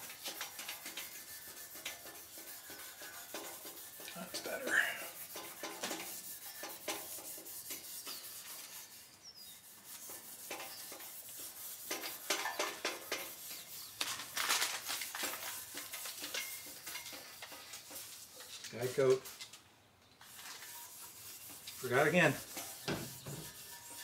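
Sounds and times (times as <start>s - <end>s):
scrubbing pad on bumper: 0.0s - 9.0s, 20.3s - 24.0s.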